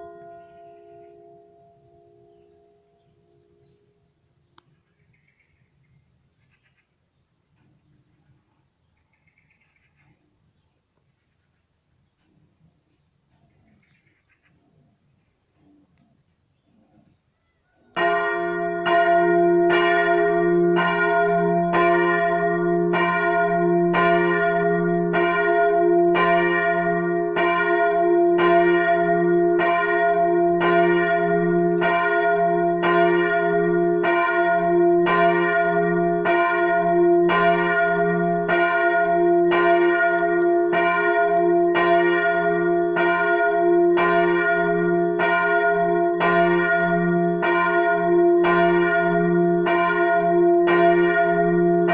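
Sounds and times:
large church bell ringing: 0.0 - 3.5, 17.9 - 51.9.

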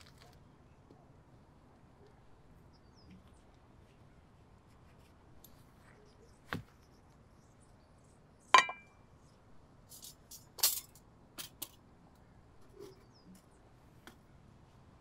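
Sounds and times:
metallic clink ringing: 8.6 - 8.9.

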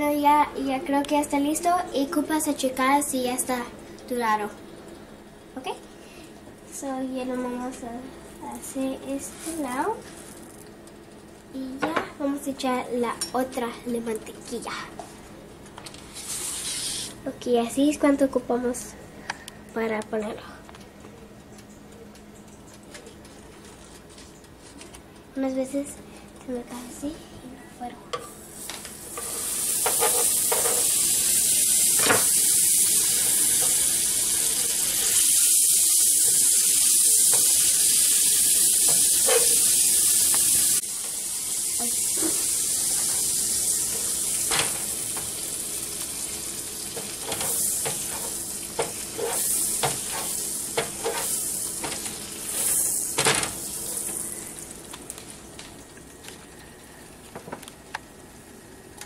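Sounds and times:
butter sizzling on griddle: 16.0 - 17.2, 28.4 - 55.8
spatula scraping pan: 16.1 - 17.2, 29.1 - 30.9, 47.2 - 52.8.

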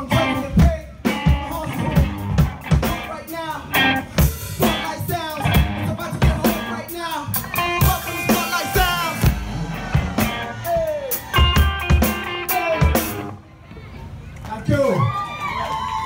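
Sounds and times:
man singing into a microphone: 0.0 - 2.0, 7.8 - 9.3
drum kit beat: 0.0 - 13.4
electric guitar playing: 1.1 - 13.4.

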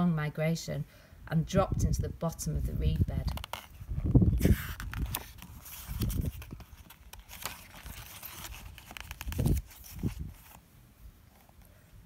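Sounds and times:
paper pages rustling: 3.3 - 10.6.

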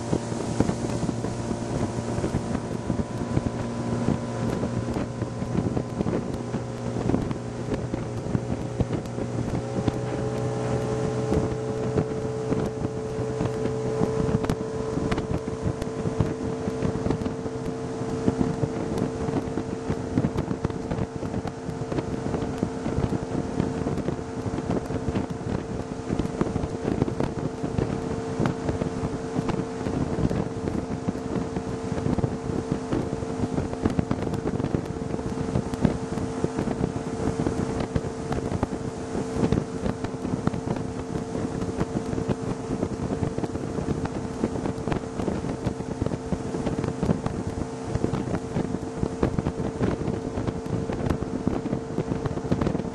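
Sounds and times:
outboard motor running: 0.0 - 52.9
wind on microphone: 0.0 - 52.9.

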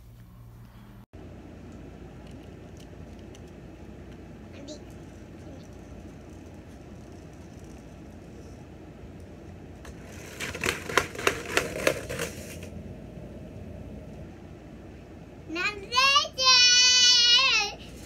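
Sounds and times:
plastic toy car clicks and rattles: 10.0 - 12.7
child shouting: 15.5 - 17.8.

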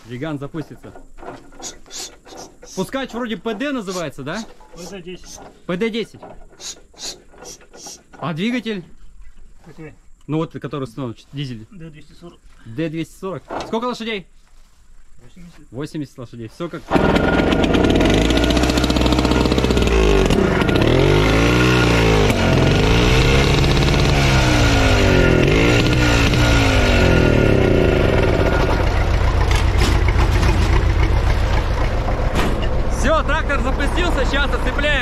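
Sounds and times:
rope pull start: 0.6 - 8.2, 16.9 - 35.0
two-stroke engine running: 16.9 - 35.0.

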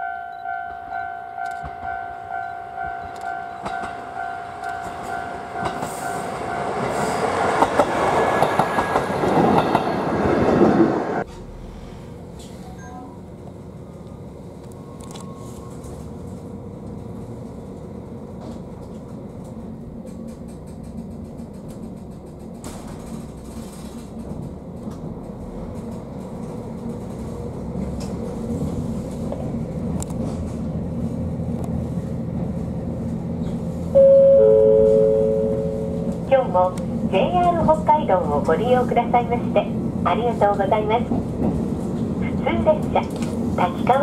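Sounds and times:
train engine rumble: 0.0 - 44.0
two-note falling chime: 34.0 - 36.1.

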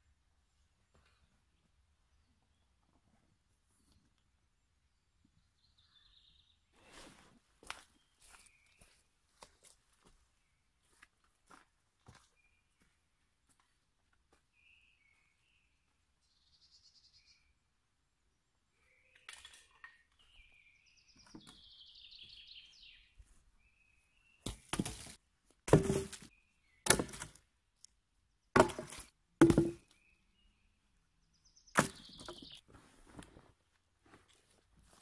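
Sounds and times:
small birds chirping: 0.4 - 11.2, 13.6 - 24.7, 26.3 - 28.6, 29.8 - 32.7
wooden poles knocking on ground: 24.5 - 26.3, 26.9 - 27.4, 28.6 - 29.9, 31.8 - 32.6.

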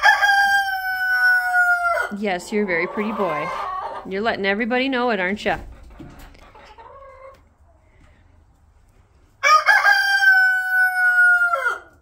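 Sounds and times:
rooster crowing: 0.0 - 2.1, 9.4 - 12.0.

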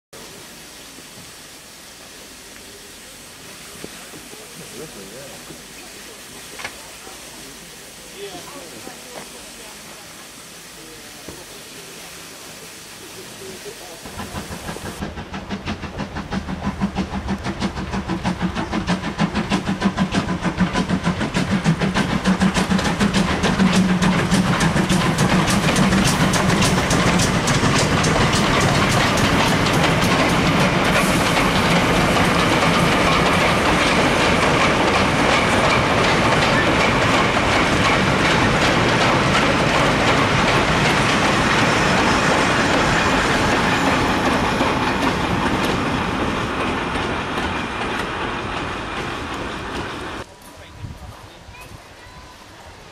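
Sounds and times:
steam locomotive passing: 0.2 - 52.9
wagon wheels clickety-clack: 14.5 - 41.6.

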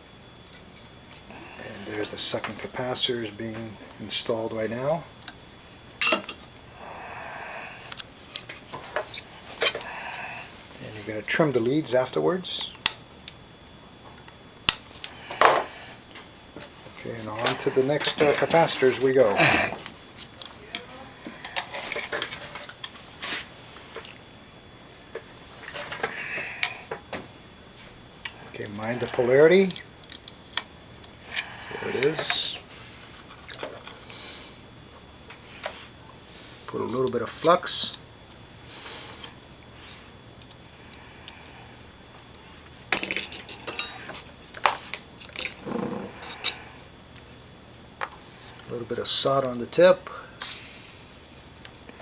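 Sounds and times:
clicks and clinks of small tools: 44.6 - 45.6.

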